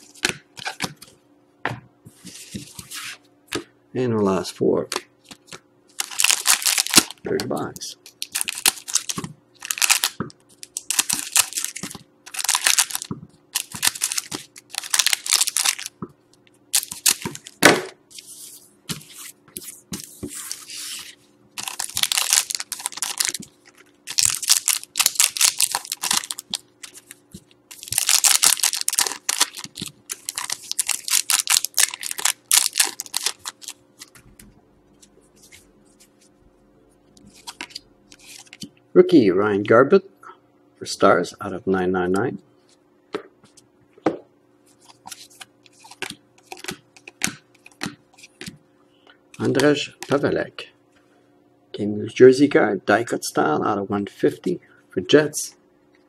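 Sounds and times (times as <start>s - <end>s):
foil wrappers crinkling and tearing: 5.9s - 7.2s, 7.8s - 15.9s, 16.7s - 17.6s, 20.4s - 34.1s, 37.3s - 38.7s, 44.8s - 48.4s.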